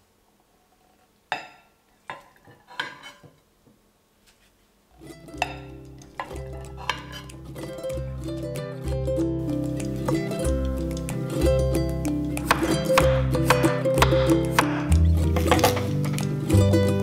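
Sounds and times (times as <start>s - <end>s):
pan scraping china plate: 2.7s - 3.2s, 6.8s - 7.4s.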